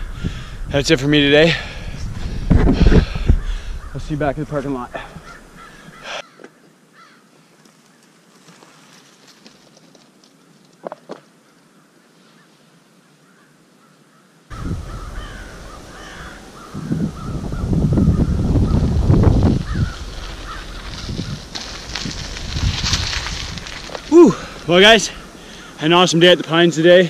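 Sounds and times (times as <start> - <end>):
birds calling: 2.8 - 8.2, 10.3 - 26.2.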